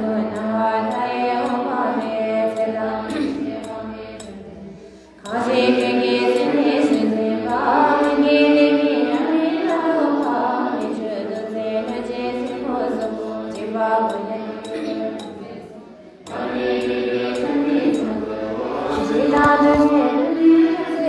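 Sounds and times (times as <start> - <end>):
women chanting prayer: 0.0 - 21.0.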